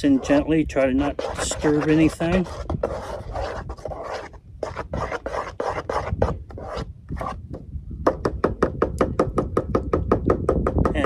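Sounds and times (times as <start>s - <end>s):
wooden spoon stirring batter: 0.0s - 7.4s.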